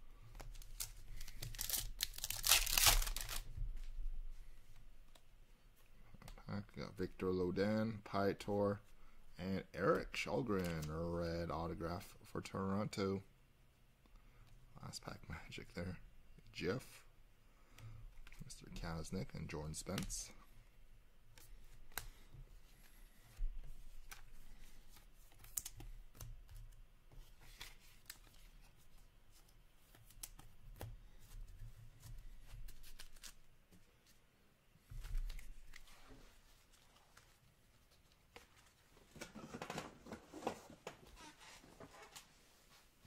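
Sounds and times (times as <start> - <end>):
packaging rustling: 0.5 - 3.5.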